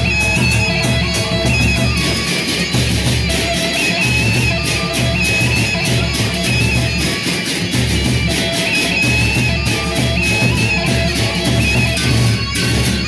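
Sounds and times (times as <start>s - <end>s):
hand cymbals clashing: 0.0s - 13.0s
high melody line: 0.0s - 13.0s
large drums beaten: 0.0s - 13.0s.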